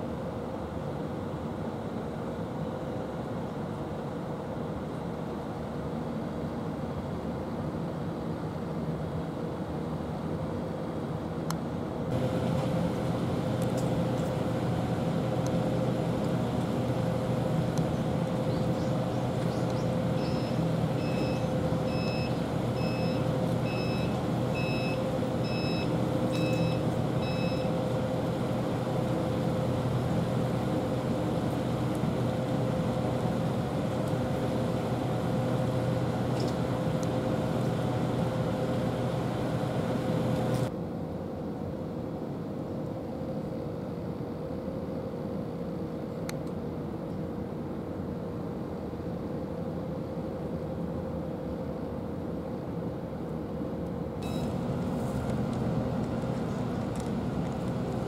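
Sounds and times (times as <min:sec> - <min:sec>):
vehicle engine humming: 0:12.1 - 0:40.7, 0:54.2 - 0:58.0
vehicle reversing alarm beeps: 0:19.6 - 0:27.8, 0:54.2 - 0:55.2.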